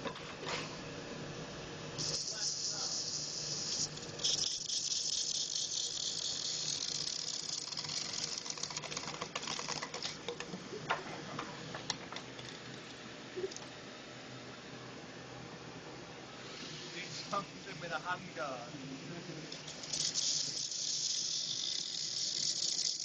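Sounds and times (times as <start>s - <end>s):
high abrasive hiss: 2.0s - 8.4s, 16.2s - 23.0s.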